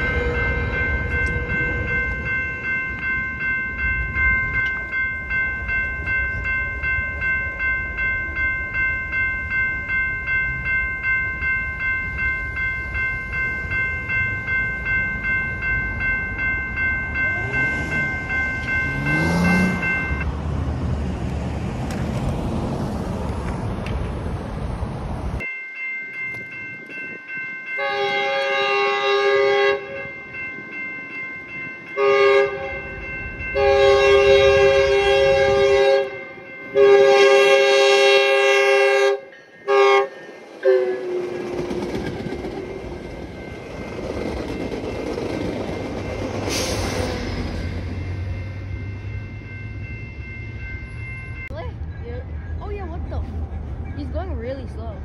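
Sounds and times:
railroad crossing bells ringing: 0.0s - 20.7s, 21.6s - 55.0s
train horn blasts: 27.8s - 30.1s, 32.0s - 33.0s, 33.6s - 41.4s.

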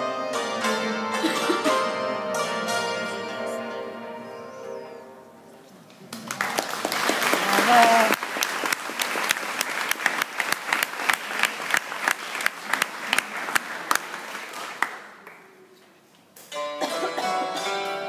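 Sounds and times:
hammered dulcimer playing: 0.0s - 5.3s, 16.5s - 18.0s
audience clapping: 5.9s - 15.8s.

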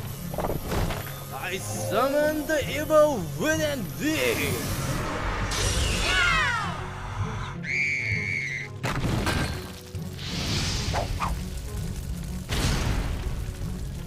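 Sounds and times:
cartoon action music: 1.3s - 9.5s.

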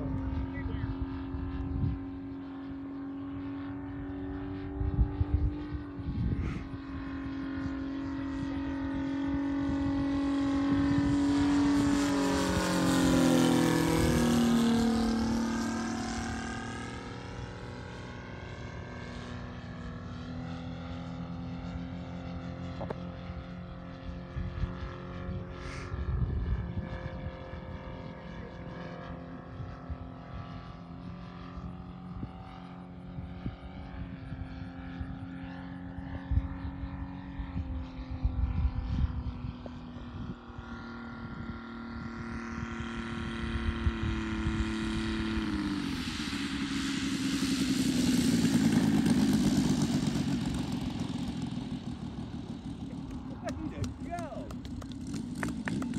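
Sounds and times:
wind buffeting microphone: 0.0s - 15.5s, 24.1s - 30.8s, 31.6s - 45.2s
model plane engine drone: 0.0s - 55.9s.

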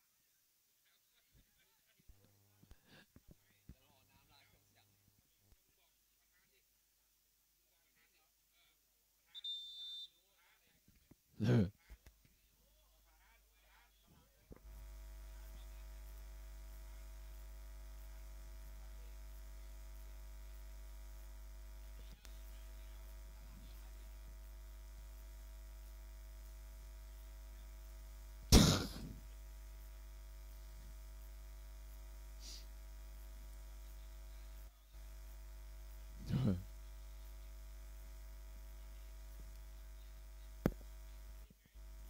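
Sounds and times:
electrical mains hum: 9.4s - 42.0s
sudden loud short noise: 28.5s - 29.1s.

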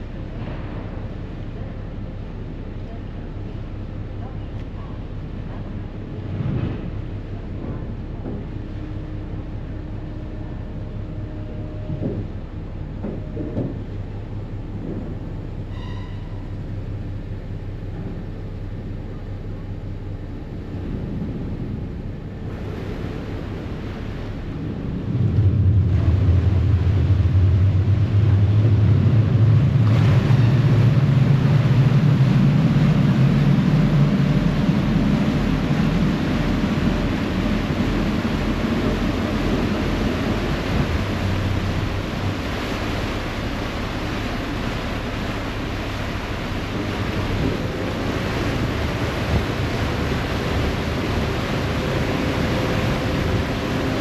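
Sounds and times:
ferry diesel engines droning: 0.0s - 54.0s
propellers churning water: 0.0s - 54.0s
wind on microphone: 20.8s - 54.0s.

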